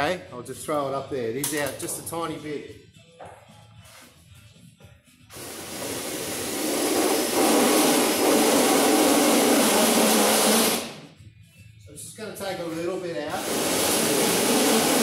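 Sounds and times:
power drill grinding metal: 5.4 - 10.9, 13.4 - 15.0.

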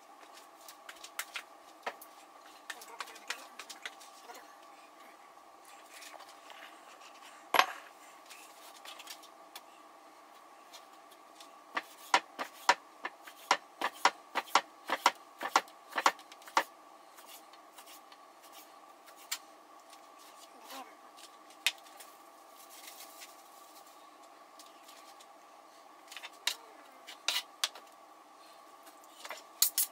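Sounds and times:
steady hum: 0.0 - 29.9
knife chopping on cutting board: 13.4 - 16.7.

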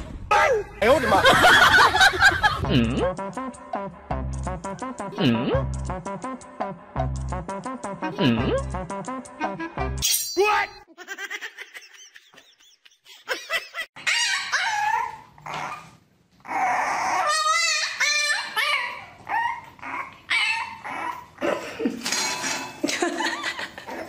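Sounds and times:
puppy whining and yelping: 14.0 - 21.4.

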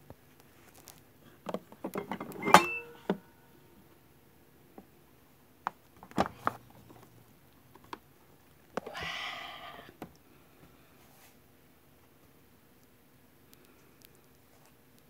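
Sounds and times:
rustling: 0.2 - 1.4
clicks and knocks handling rice cooker: 1.4 - 3.2.

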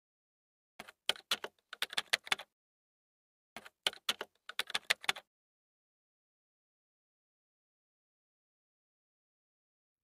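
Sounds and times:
keyboard key clicks: 0.8 - 2.4, 3.6 - 5.2.

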